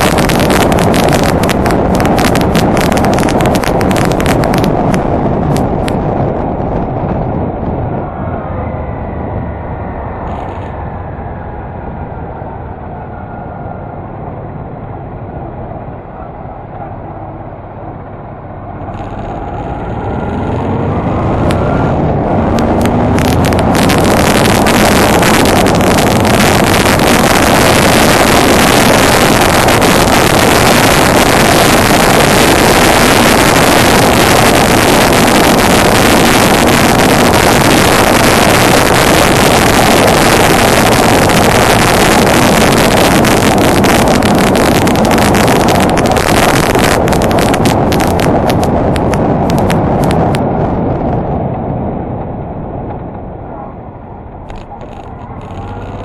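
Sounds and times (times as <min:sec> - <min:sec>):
wind on microphone: 0:00.0 - 0:56.0
motorcycle engine accelerating: 0:18.9 - 0:50.4.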